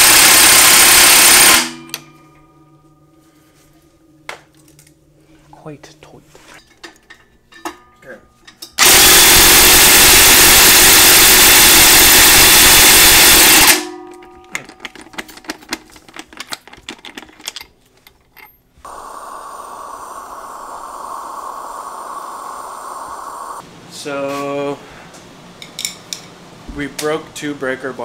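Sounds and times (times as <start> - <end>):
steady hum: 1.6 - 7.9, 18.8 - 24.2.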